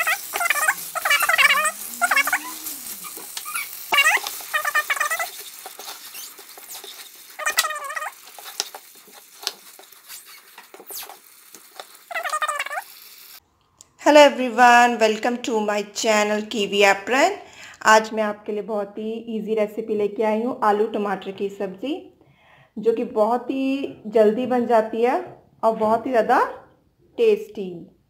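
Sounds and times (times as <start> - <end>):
high wavering squeaks: 0.0 - 8.8, 12.0 - 13.0.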